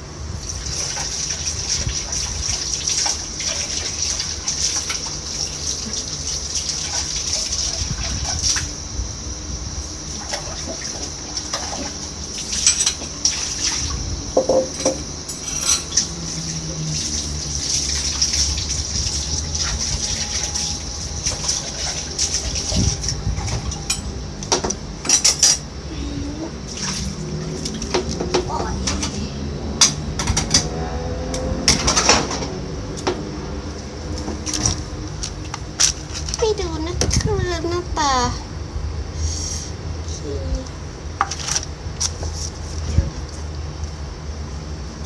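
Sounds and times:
water sloshing in a basin: 0.4 - 8.8, 9.9 - 24.0, 26.5 - 29.2
dishes and utensils clinking: 12.6 - 13.1, 14.4 - 16.1, 23.8 - 24.1, 25.0 - 25.6.

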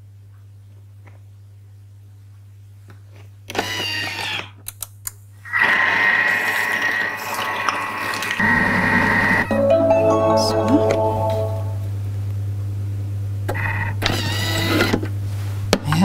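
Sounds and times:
food processor motor whining: 3.5 - 4.5, 5.5 - 9.5, 13.5 - 15.1.

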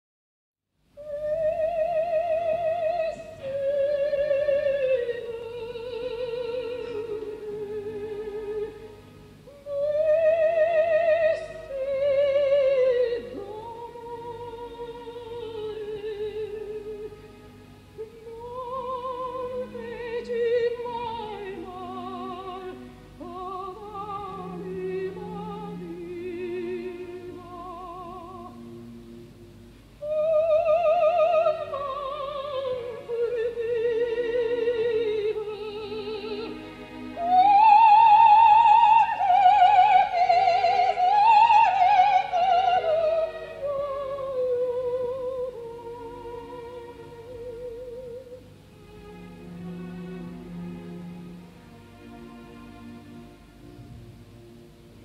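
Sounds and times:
quiet orchestral accompaniment: 0.8 - 55.0
operatic soprano singing: 1.0 - 48.7.

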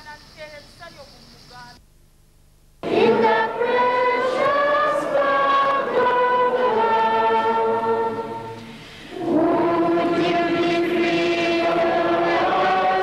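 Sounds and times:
choir singing held notes: 2.8 - 13.0.

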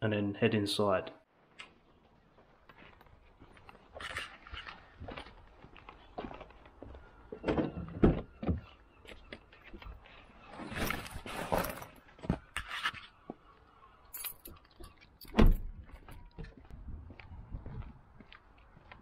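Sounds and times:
keys and items rattling: 14.1 - 16.4.

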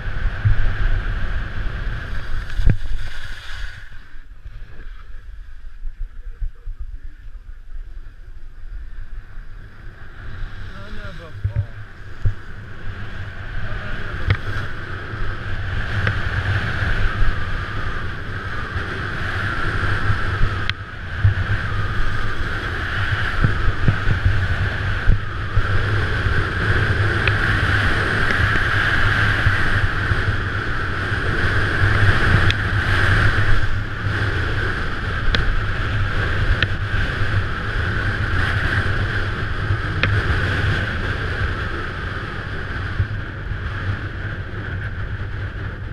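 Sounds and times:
wind rushing over microphone: 0.0 - 45.9
skis scraping on snow: 0.1 - 8.3.

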